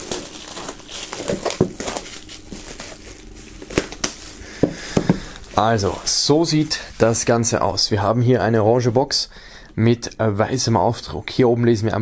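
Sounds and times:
plastic film crinkling: 0.0 - 7.9.

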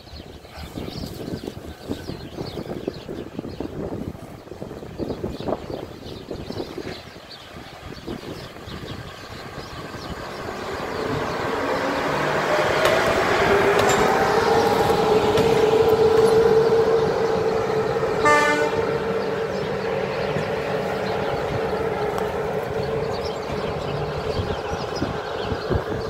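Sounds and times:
electric locomotive humming: 1.0 - 26.0
train horn toot: 15.9 - 20.5.

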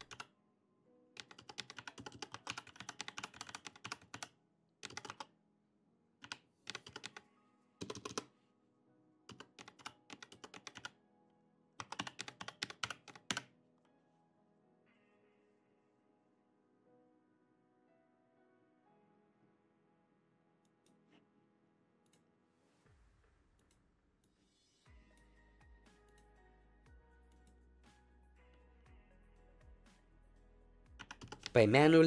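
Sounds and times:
computer keyboard typing: 0.0 - 0.3, 1.2 - 5.3, 6.2 - 7.2, 7.8 - 8.3, 9.3 - 11.0, 11.8 - 13.5, 31.0 - 31.8
soft background music: 0.0 - 32.0.

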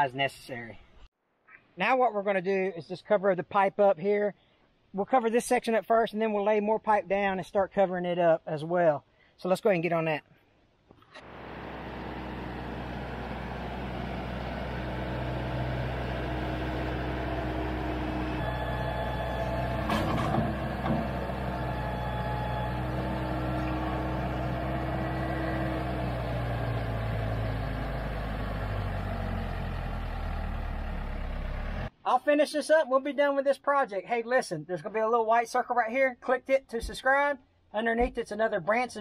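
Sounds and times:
loader bucket pushing dirt: 11.2 - 31.9
tractor diesel engine running: 11.2 - 31.9
sharp knocks: 19.8 - 21.4.

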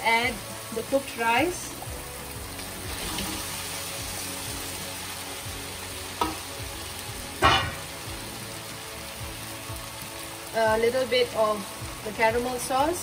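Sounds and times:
vegetables sizzling in a wok: 0.0 - 13.0
metal clanks against wok: 7.4 - 7.9.

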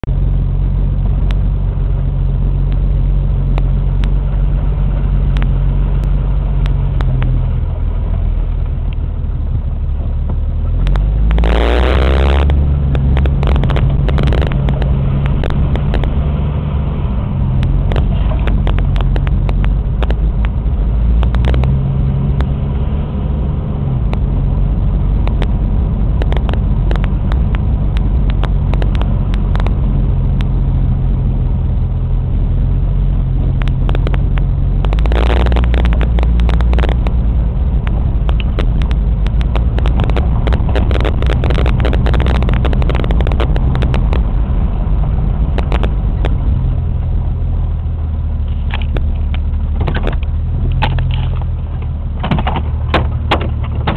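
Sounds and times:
car engine hum: 0.0 - 53.9
road noise: 0.0 - 53.9
clicks and rattles: 37.8 - 44.2, 48.5 - 53.9.

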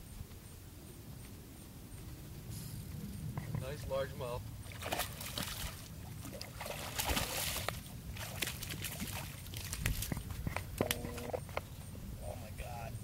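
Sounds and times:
fish splashing at water surface: 4.7 - 10.2.

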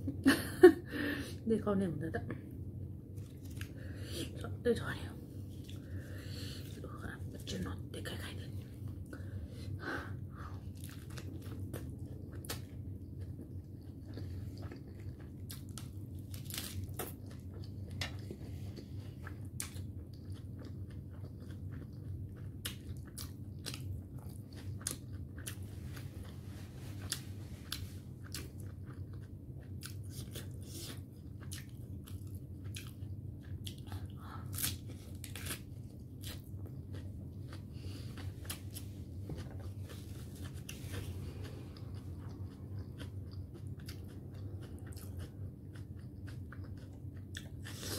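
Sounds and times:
low hum: 0.0 - 47.9
person chewing food: 2.7 - 4.0, 5.4 - 6.9, 8.6 - 47.9
lettuce crunching: 10.7 - 18.4, 34.5 - 37.6.

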